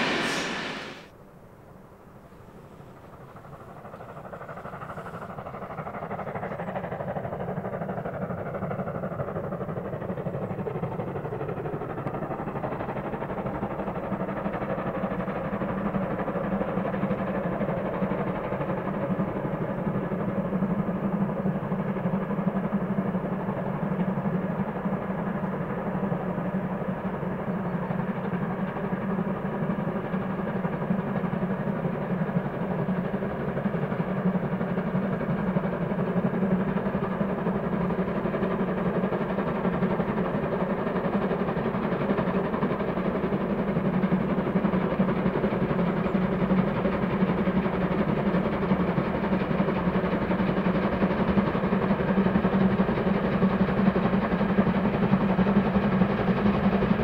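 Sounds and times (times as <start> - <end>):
distant steam locomotive rumble: 0.0 - 57.0.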